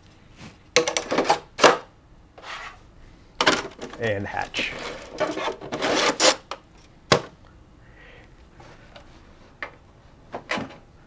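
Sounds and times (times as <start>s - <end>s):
plastic parts rubbing scrape: 2.4s - 2.8s, 4.5s - 6.5s.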